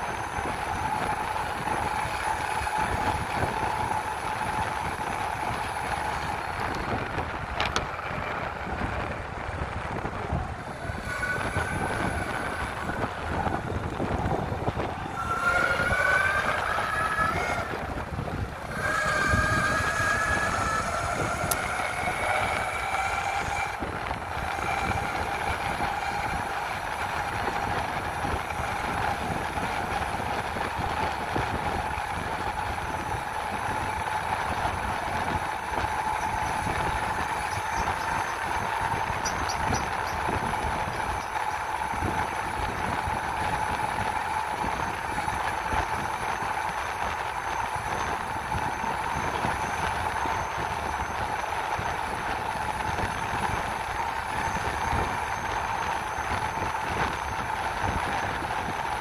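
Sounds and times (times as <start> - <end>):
electric motors whining: 0.0 - 59.0
wheels rumbling: 0.0 - 59.0
wind: 0.0 - 59.0.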